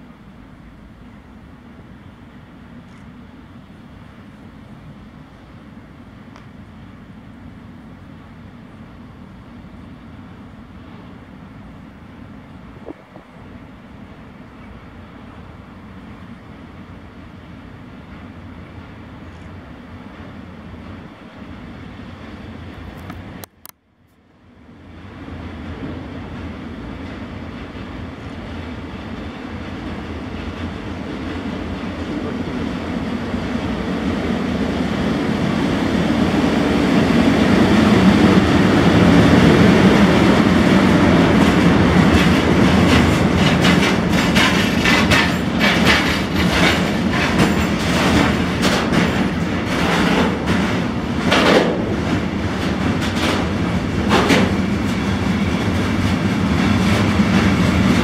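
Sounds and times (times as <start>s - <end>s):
freight train rumbling past: 0.0s - 23.5s, 24.3s - 58.0s
wheel clatter over rail joints: 41.1s - 58.0s
sharp clacks: 42.1s - 55.0s.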